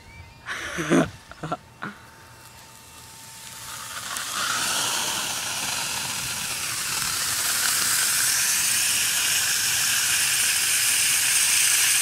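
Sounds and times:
hose spraying water hiss: 0:02.5 - 0:12.0.

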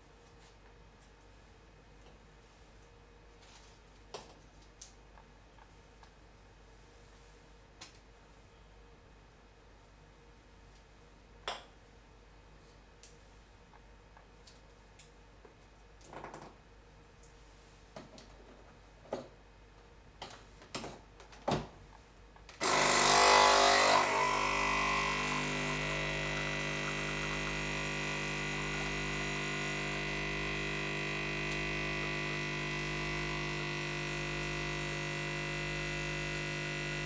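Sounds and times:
coffee machine pump buzzing: 0:22.6 - 0:37.0.

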